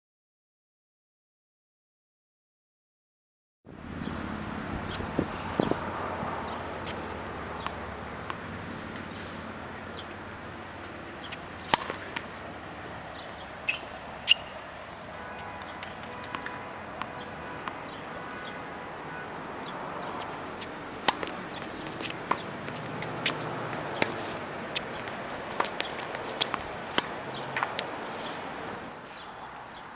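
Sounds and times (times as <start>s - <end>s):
tennis ball popping off rackets: 6.8s - 9.4s, 10.3s - 12.5s, 15.6s - 18.6s, 20.2s - 28.5s
ball bouncing on hard court: 7.6s - 9.4s, 11.2s - 12.4s, 15.6s - 18.6s, 20.0s - 27.9s
footsteps: 20.2s - 28.5s.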